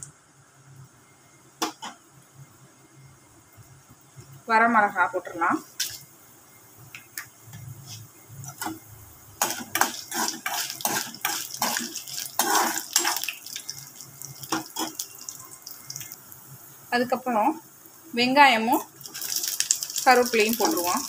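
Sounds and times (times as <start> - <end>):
food frying in oil: 4.7 - 21.0
steel spoon scraping metal pan: 9.4 - 13.3.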